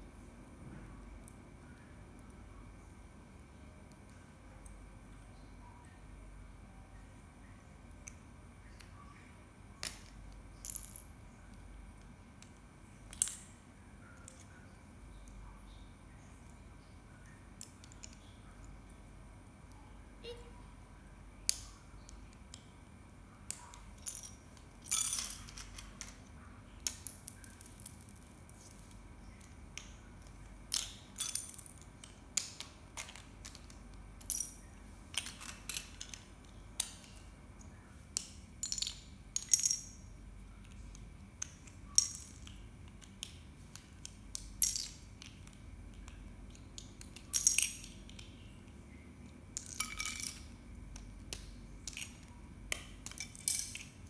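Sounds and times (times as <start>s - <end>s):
small pieces clattering on tiles: 24.0s - 26.2s, 51.8s - 53.9s
plastic bricks clicking and snapping: 26.8s - 34.5s, 35.1s - 37.3s, 41.4s - 48.4s, 49.6s - 53.9s.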